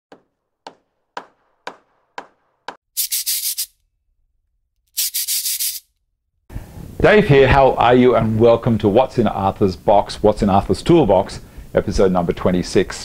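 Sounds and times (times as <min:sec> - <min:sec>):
sharp knocks: 0:00.1 - 0:02.8.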